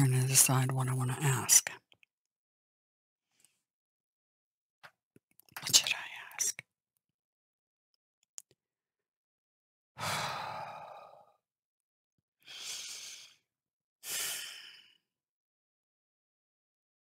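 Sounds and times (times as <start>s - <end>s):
person exhaling deeply: 10.0s - 11.4s, 12.5s - 13.4s.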